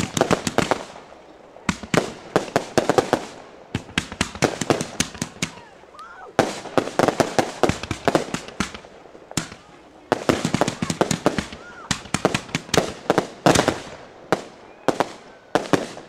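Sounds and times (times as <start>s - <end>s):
fireworks shots and bangs: 0.0s - 16.0s.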